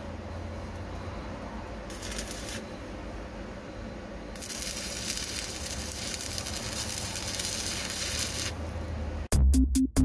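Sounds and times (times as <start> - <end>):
arc welding: 1.9 - 3.0, 4.3 - 8.8.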